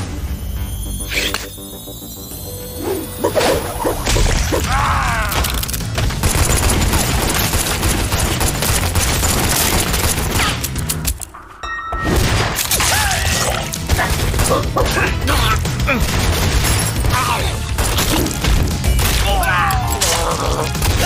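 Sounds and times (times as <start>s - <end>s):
rapid gunfire: 5.8s - 11.0s, 13.8s - 15.0s, 15.7s - 17.0s.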